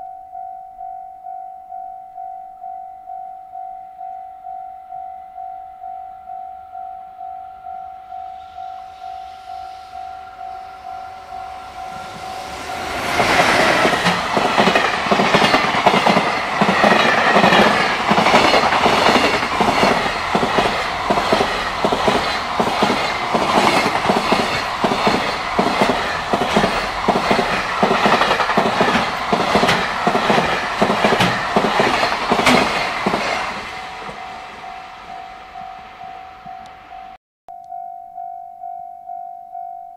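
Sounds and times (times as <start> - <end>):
level-crossing bell ringing: 0.0 - 39.9
train wheels clattering over rails: 11.8 - 34.6.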